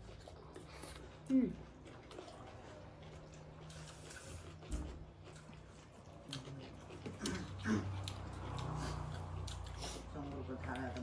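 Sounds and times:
low hum from a voice: 0.0s - 3.0s
chewing and lip smacks: 0.0s - 11.0s.

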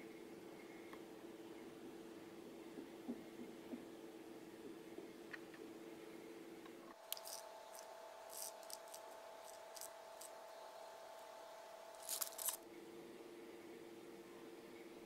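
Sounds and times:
faint steady hum: 0.0s - 15.0s
paper packet crinkling: 7.0s - 10.4s, 12.0s - 12.6s
sugar beads clicking: 7.0s - 10.4s, 12.0s - 12.6s.

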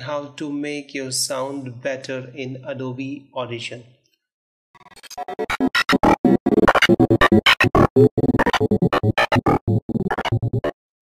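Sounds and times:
short electronic music hits: 4.8s - 10.8s.

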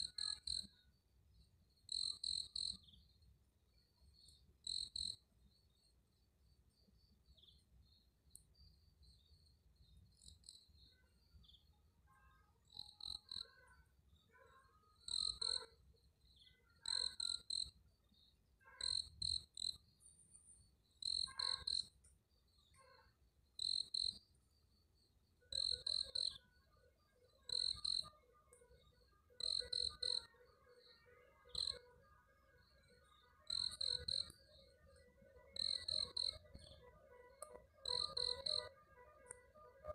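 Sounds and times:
faint continuous chirping: 0.0s - 39.9s
low pulsing insect chorus: 0.0s - 39.9s
short high cricket chirps: 15.0s - 39.5s.

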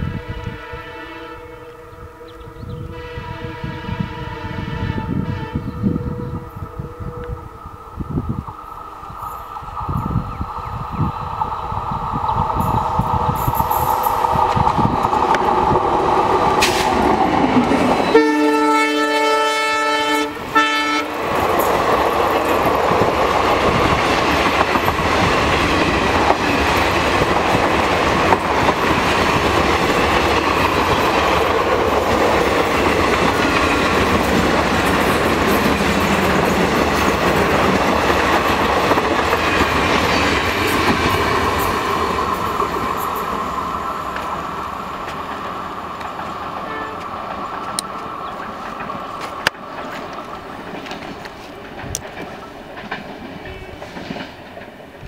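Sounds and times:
locomotive air horn: 0.0s - 7.6s, 18.0s - 21.2s, 46.6s - 47.1s
train wheels clacking on rails: 11.4s - 55.0s.

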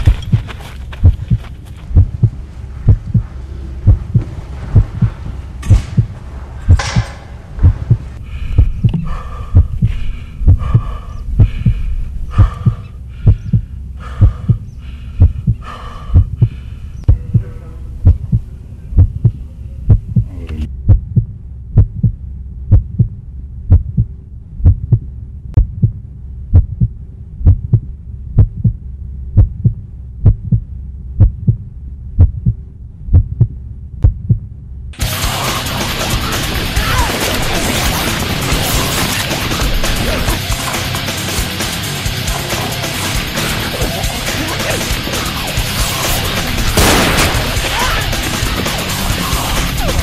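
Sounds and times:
heartbeat thumps: 0.0s - 35.4s
low drone: 1.2s - 50.0s.

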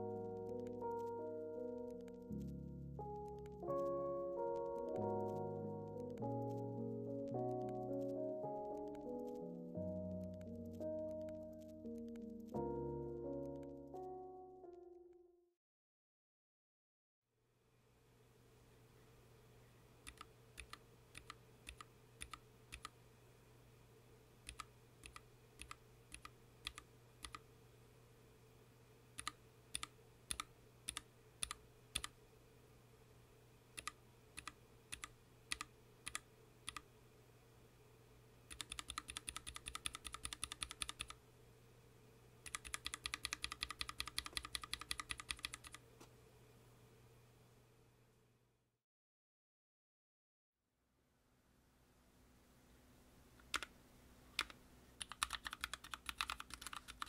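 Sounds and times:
fast typing on keyboard: 20.1s - 22.9s, 24.5s - 27.4s, 29.2s - 32.1s, 33.8s - 36.8s, 38.5s - 41.2s, 42.5s - 45.8s, 53.5s - 53.7s, 54.4s - 57.0s
mechanical keyboard key presses: 20.1s - 22.9s, 24.5s - 27.4s, 29.2s - 32.1s, 33.8s - 36.8s, 38.5s - 41.2s, 42.5s - 45.8s, 54.4s - 57.0s.

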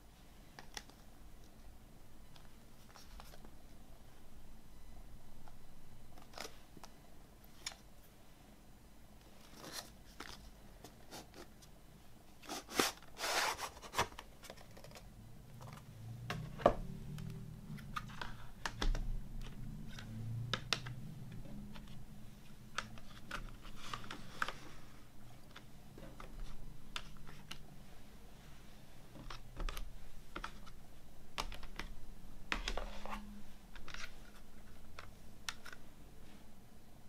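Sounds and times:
plastic cases clicking and scraping: 12.4s - 22.0s, 22.7s - 24.8s, 29.1s - 30.8s, 31.4s - 35.9s.

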